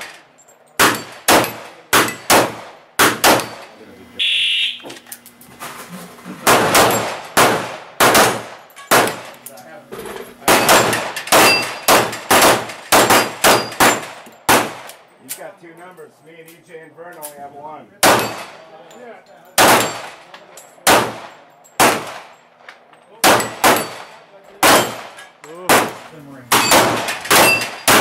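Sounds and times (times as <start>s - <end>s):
handgun shots: 0.8s - 3.6s, 6.4s - 9.3s, 10.5s - 15.0s, 18.0s - 18.5s, 19.6s - 20.2s, 24.6s - 28.0s
steel plates clanging and ringing: 10.4s - 14.5s, 26.5s - 28.0s.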